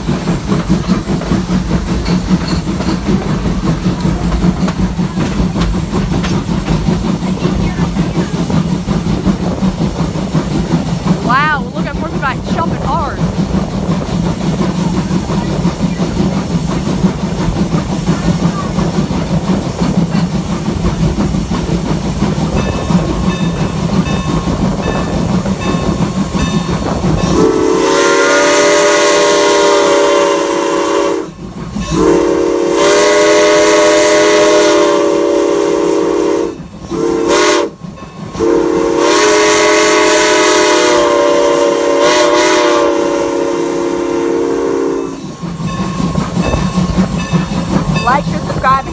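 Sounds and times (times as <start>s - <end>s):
steam locomotive running: 0.0s - 48.9s
steam whistle chord blasts: 27.2s - 45.4s.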